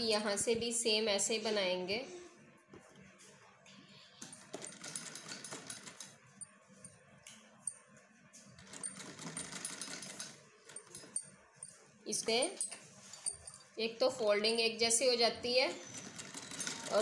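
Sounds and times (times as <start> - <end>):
sewing machine clattering: 4.2 - 6.2, 8.6 - 11.3, 15.7 - 17.0.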